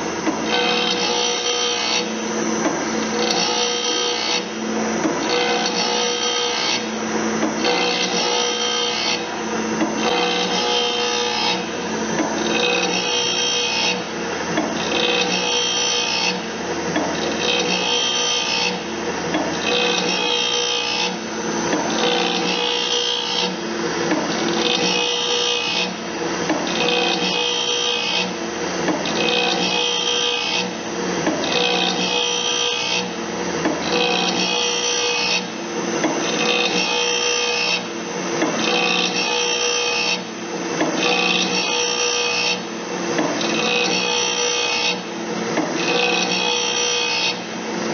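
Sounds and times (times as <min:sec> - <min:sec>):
grinding wheel on saw blade: 0:00.4 - 0:02.4.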